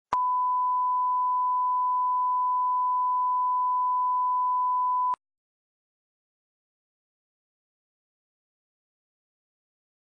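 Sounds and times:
sine test tone: 0.1s - 5.2s.

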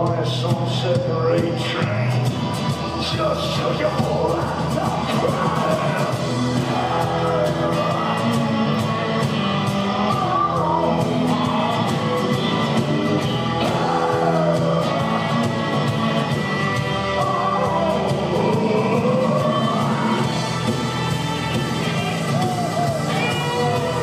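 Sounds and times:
acoustic guitar: 0.0s - 24.0s
keyboard: 0.0s - 24.0s
steady drum beat: 0.0s - 24.0s
person singing long held notes: 4.2s - 24.0s.

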